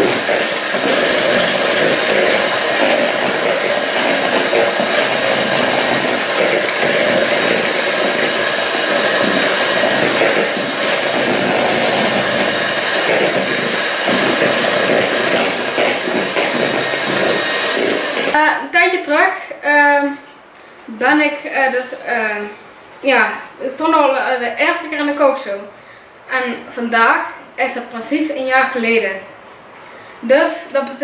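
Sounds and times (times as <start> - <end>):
electric hand mixer whipping cream: 0.0 - 18.4.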